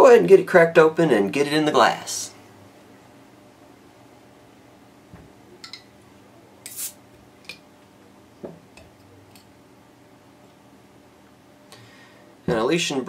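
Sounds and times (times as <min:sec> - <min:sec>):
bottle cap hiss: 0:06.6 - 0:07.0.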